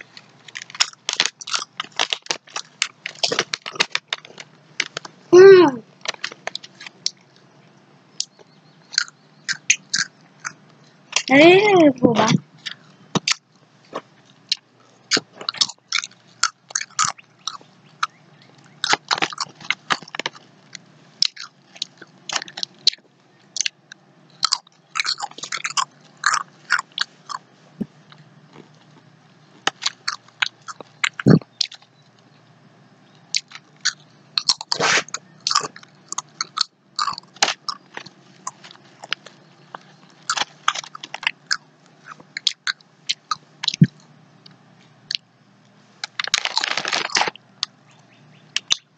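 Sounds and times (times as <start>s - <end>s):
potato crisps crunching: 0.0s - 7.3s, 8.2s - 11.4s, 12.6s - 23.0s, 24.4s - 27.4s, 28.1s - 31.9s, 33.3s - 44.0s, 46.0s - 47.7s.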